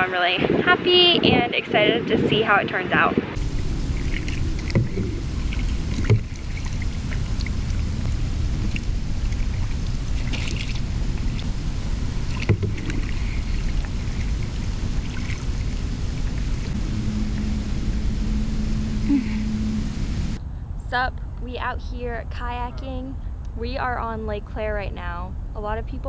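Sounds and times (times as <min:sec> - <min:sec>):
low rumble: 0:02.0 - 0:26.0
paddle splashing in water: 0:03.4 - 0:17.6.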